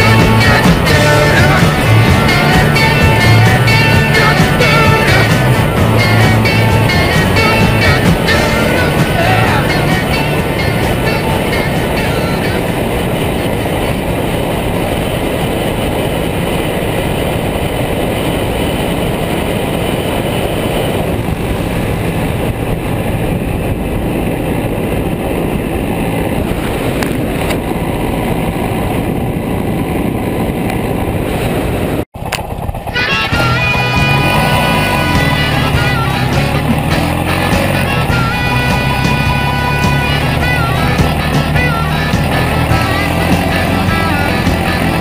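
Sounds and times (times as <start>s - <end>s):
motorcycle road noise: 0.0s - 45.0s
wind rush: 0.0s - 45.0s.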